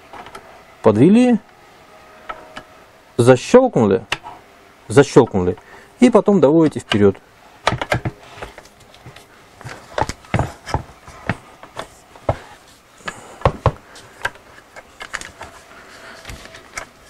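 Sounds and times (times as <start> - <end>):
air rifle parts clicking: 13.0 - 15.6.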